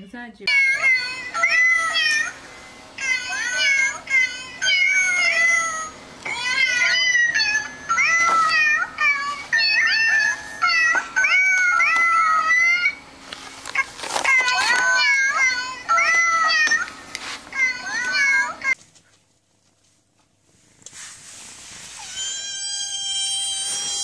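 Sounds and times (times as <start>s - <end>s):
electronic tune of cat meows: 0.5s - 2.4s, 3.0s - 13.0s, 14.3s - 16.8s, 22.0s - 24.0s.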